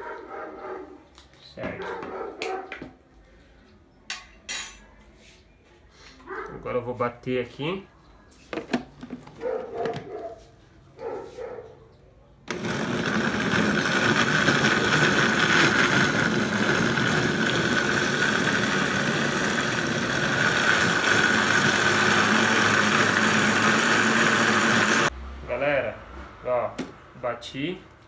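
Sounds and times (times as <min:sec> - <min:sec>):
blender motor running: 0:12.5 - 0:25.1.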